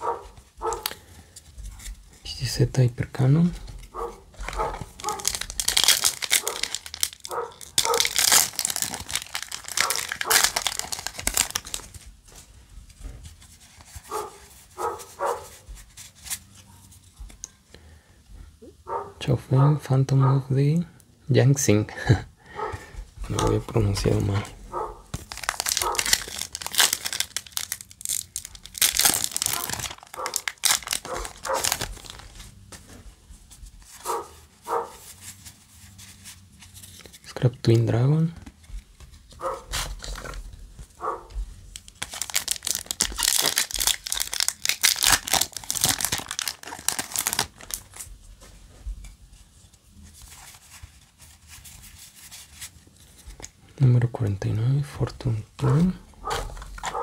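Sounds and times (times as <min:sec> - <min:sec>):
foil wrapper crinkling and tearing: 0:00.0 - 0:01.2, 0:03.5 - 0:12.3, 0:23.3 - 0:24.4, 0:25.0 - 0:32.6, 0:39.0 - 0:48.1, 0:55.7 - 0:57.0
cards rustling: 0:03.3 - 0:17.6, 0:22.7 - 0:53.6, 0:55.6 - 0:57.0.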